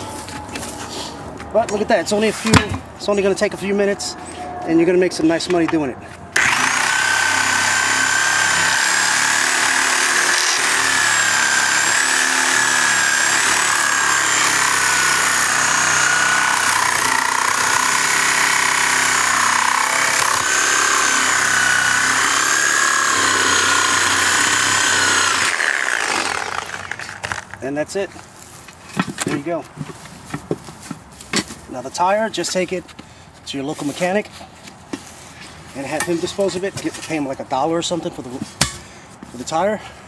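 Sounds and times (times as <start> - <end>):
reciprocating saw cutting: 6.4 - 27.5.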